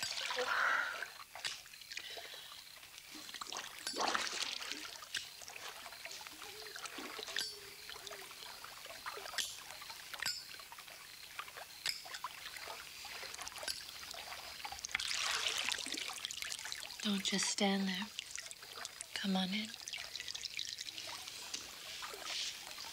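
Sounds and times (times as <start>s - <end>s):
pool water splashing: 0.0s - 22.9s
water dripping: 0.0s - 22.9s.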